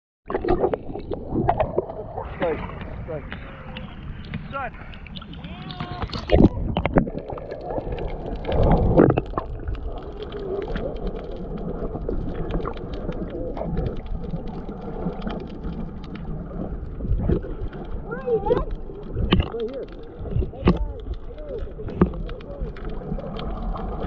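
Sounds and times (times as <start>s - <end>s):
underwater rumble and sloshing: 0.2s - 24.0s
churning water: 0.3s - 24.0s
faint clicks and crackles: 0.3s - 24.0s.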